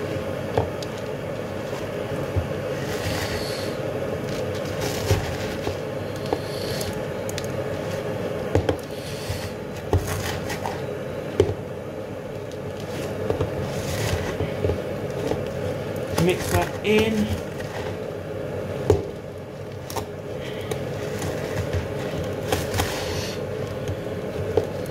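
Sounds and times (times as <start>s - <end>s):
steady background hum: 0.0s - 24.9s
crumbs rustling: 0.8s - 8.2s, 12.3s - 18.2s, 19.2s - 24.9s.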